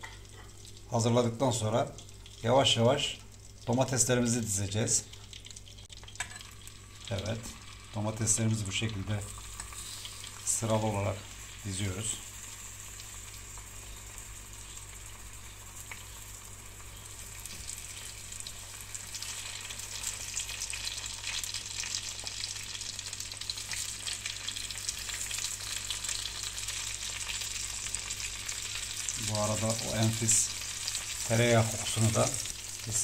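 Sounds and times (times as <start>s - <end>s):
tomato slices sizzling in butter: 0.0s - 33.0s.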